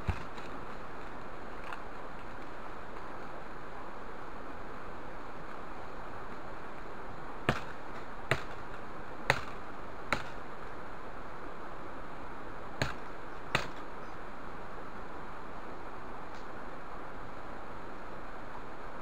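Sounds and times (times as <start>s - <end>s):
wood chopping strikes: 0.0s - 0.5s, 7.4s - 10.4s, 12.8s - 13.9s
steady hiss: 0.0s - 19.0s.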